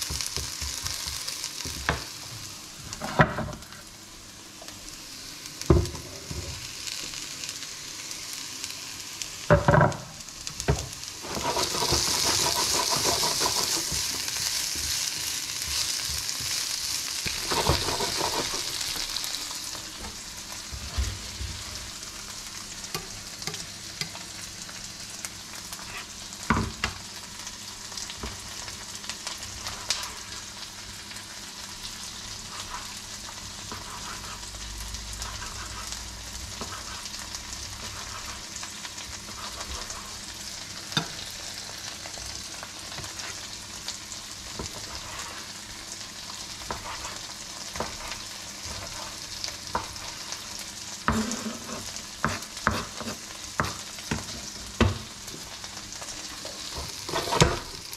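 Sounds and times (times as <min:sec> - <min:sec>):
vegetables sizzling in a frying pan: 0:00.0 - 0:57.9
spatula stirring: 0:11.2 - 0:16.6, 0:17.2 - 0:19.1, 0:29.3 - 0:30.4, 0:32.3 - 0:34.6, 0:35.2 - 0:40.3, 0:44.5 - 0:45.6, 0:46.5 - 0:50.5, 0:51.1 - 0:54.4, 0:56.0 - 0:57.8.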